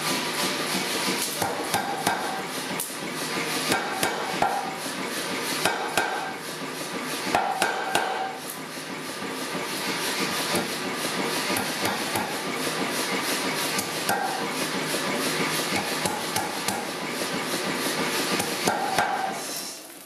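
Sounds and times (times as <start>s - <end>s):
power hammer running: 0.0s - 19.7s
hammer blows on hot steel: 3.7s - 4.8s, 5.6s - 6.4s, 7.3s - 8.6s, 15.7s - 17.1s, 18.3s - 19.6s.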